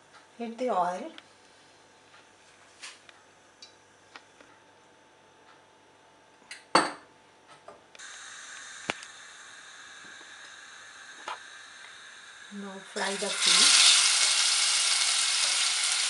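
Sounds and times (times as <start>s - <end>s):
steady hiss: 8.0s - 16.0s.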